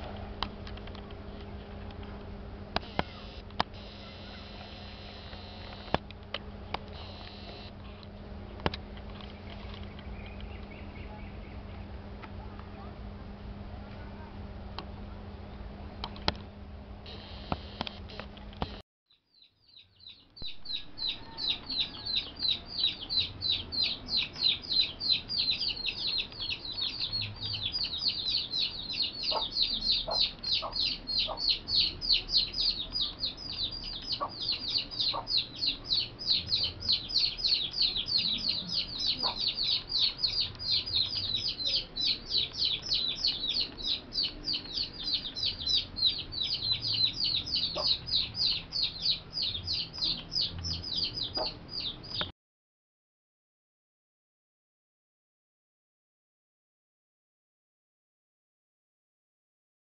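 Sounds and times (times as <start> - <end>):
low steady hum: 0.0 - 18.8, 19.8 - 52.3
rapid high chirping: 19.4 - 52.3.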